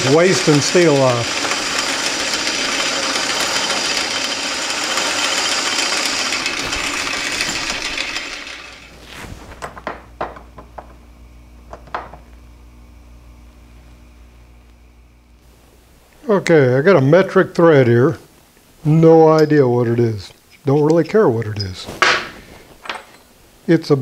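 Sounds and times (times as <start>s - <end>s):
metal lathe cutting steel: 0.0s - 8.9s
lathe winding down: 0.0s - 9.0s.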